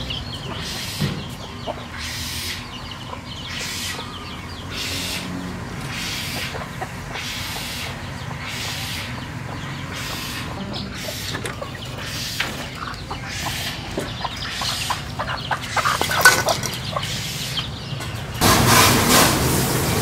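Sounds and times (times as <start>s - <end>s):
chickens clucking: 0.0s - 19.9s
steady background hum: 0.0s - 20.0s
loud rushing noise: 18.4s - 20.0s.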